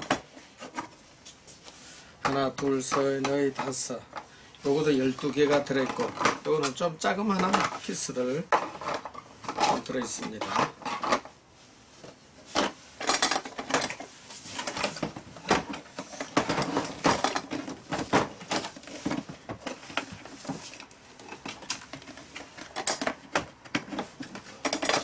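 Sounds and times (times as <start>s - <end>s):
plastic bins rattling: 2.2s - 11.4s, 12.4s - 25.0s
hard plastic clattering: 5.2s - 11.4s, 12.0s - 25.0s.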